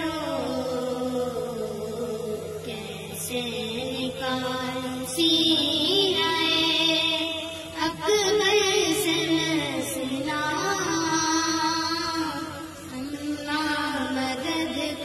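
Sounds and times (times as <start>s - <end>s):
girls singing into microphone: 0.0s - 15.0s.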